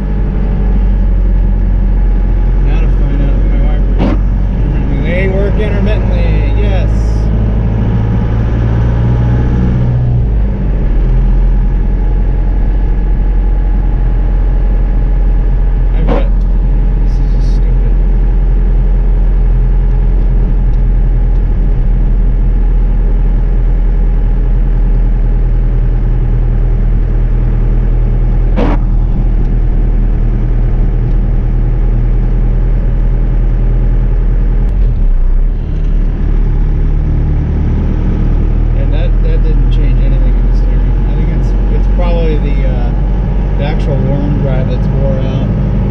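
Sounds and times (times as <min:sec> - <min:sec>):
diesel engine droning in cab: 0:00.0 - 0:45.9.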